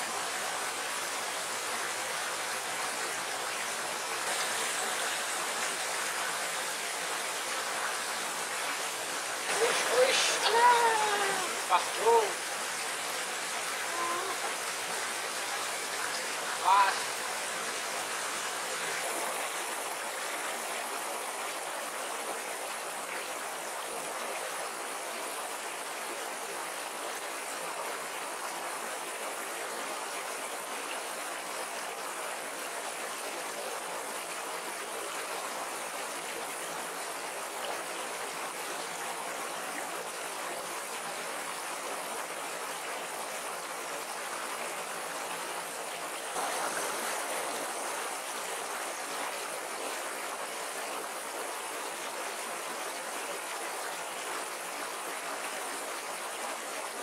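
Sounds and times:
stream flowing over stones: 0.0s - 57.0s.

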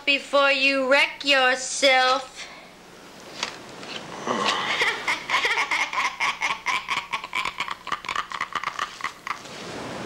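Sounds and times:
person cackling laugh: 4.3s - 9.5s.

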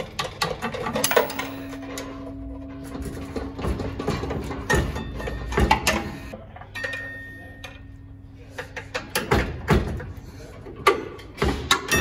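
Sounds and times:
screwdriver clanking on metal: 1.0s - 1.7s.

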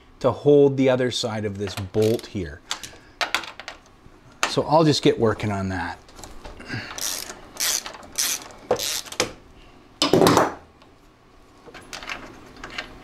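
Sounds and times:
socket ratchet clicking: 6.9s - 9.3s.

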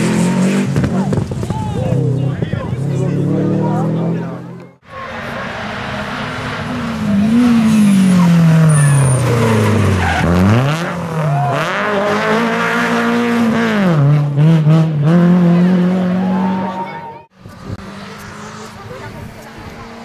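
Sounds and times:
rally car engine revving: 0.0s - 20.0s
tyres squealing and skidding: 4.8s - 12.2s, 16.0s - 20.0s.

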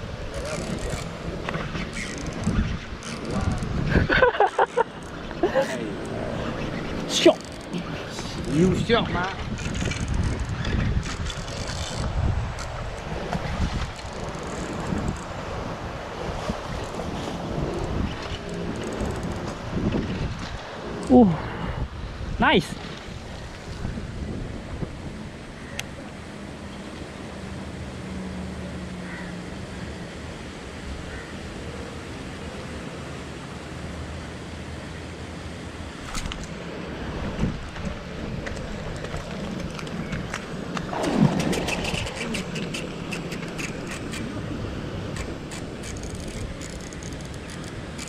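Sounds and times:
wind noise on microphone: 0.0s - 7.2s, 7.9s - 25.6s, 36.0s - 48.0s
fishing reel cranking: 1.9s - 3.7s, 7.2s - 8.7s, 11.2s - 12.7s, 45.1s - 48.0s.

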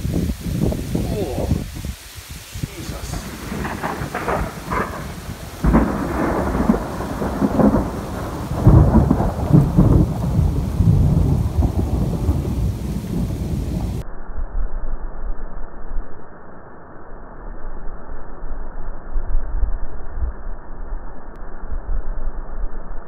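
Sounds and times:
rain hissing: 0.0s - 14.0s
thunder rumbling: 0.0s - 14.0s.

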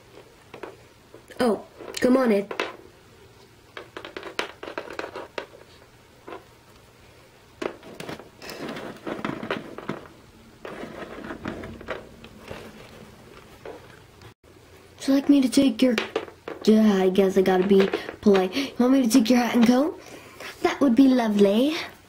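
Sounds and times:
rustling: 0.0s - 18.8s
plastic figurines tapping on wood: 15.2s - 16.7s, 17.5s - 18.5s.

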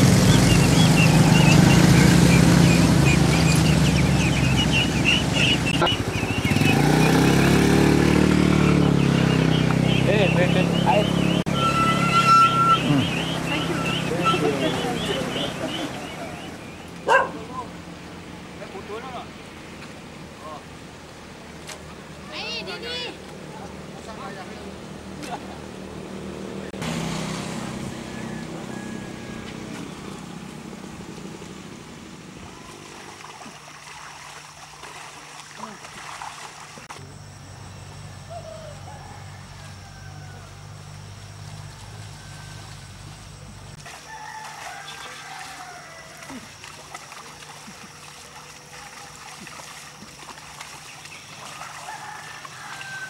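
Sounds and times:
thin high tone: 10.0s - 16.4s
steady low hum: 27.5s - 43.9s
rooster crowing: 27.8s - 30.1s, 38.2s - 43.0s, 43.8s - 46.6s, 51.5s - 53.0s.

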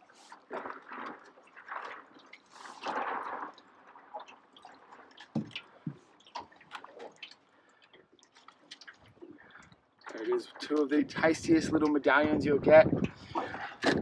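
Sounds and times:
wet squelching: 0.0s - 10.8s.

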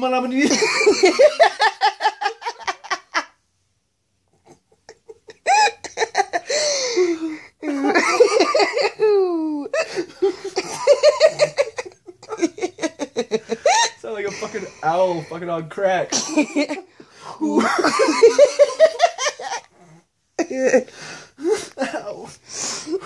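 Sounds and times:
people laughing hard: 0.5s - 3.3s, 4.4s - 14.6s, 17.4s - 19.7s.

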